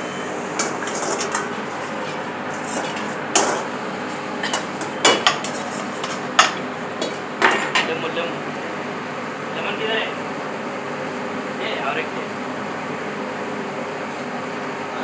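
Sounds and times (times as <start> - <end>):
steady frying hiss: 0.0 - 8.4
metal ladle clanking on wok: 4.4 - 7.9.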